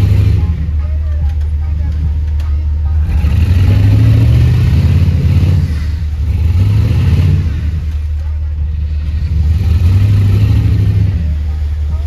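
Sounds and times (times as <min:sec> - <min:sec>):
buggy engine revving hard: 0:00.0 - 0:00.7, 0:03.0 - 0:08.1, 0:08.7 - 0:11.9.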